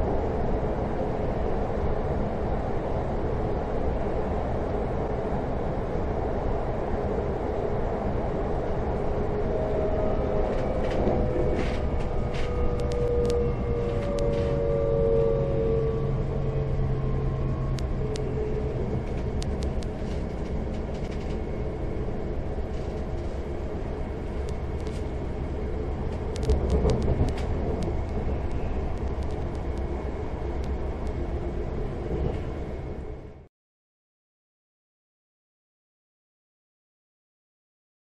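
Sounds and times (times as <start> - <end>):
train rumbling on rails: 0.0 - 33.5
whining tone: 9.3 - 31.2.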